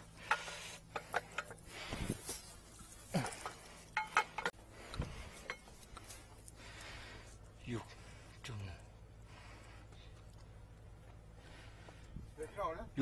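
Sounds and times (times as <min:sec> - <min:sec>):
tools clinking on pipe fittings: 0:00.0 - 0:06.4.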